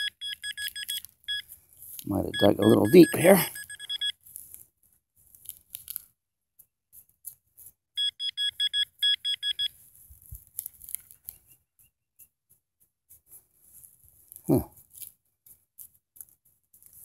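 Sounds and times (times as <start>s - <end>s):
pinpointer beeping rapidly: 0.0s - 1.4s, 2.3s - 4.1s, 8.0s - 9.7s.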